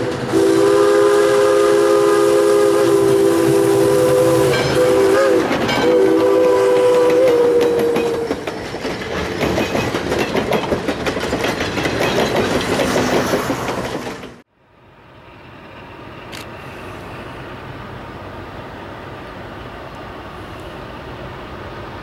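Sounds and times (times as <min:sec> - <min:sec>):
train wheels clattering over joints: 0:00.0 - 0:00.4, 0:04.4 - 0:14.4
approaching train rumble: 0:00.0 - 0:22.0.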